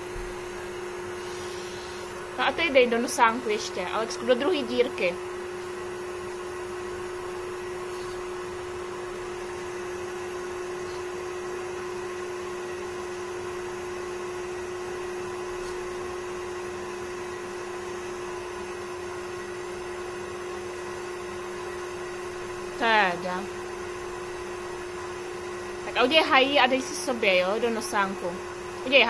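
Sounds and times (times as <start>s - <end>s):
suction motor humming: 0.0s - 29.0s.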